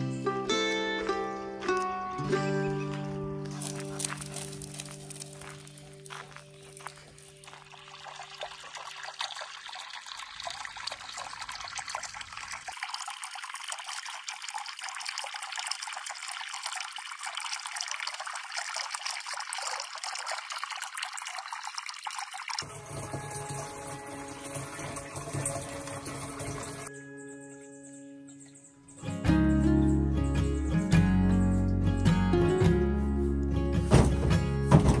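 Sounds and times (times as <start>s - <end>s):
water splashing on grass and rocks: 3.5s - 26.9s
water gushing from hose: 7.5s - 26.9s.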